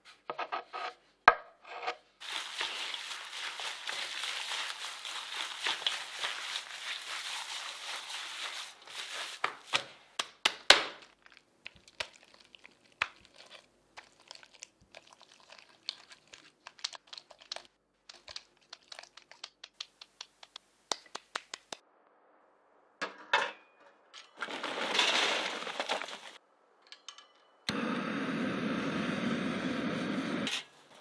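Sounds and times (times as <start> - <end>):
hands kneading raw meat: 2.2 - 21.8
sticky clicks and crackles: 11.0 - 21.8
wet slaps: 18.1 - 21.8.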